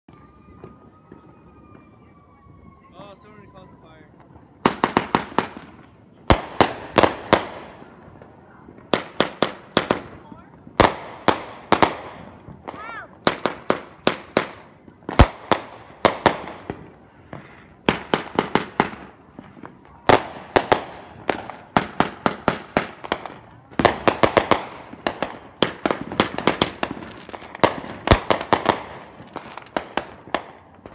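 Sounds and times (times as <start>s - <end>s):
fireworks bangs: 0.1s - 30.9s.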